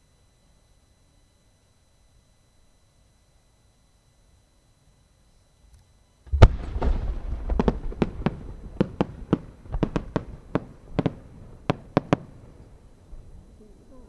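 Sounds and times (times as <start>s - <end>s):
firework launch boom: 6.3s - 12.6s
sharp firework cracks: 6.3s - 13.0s.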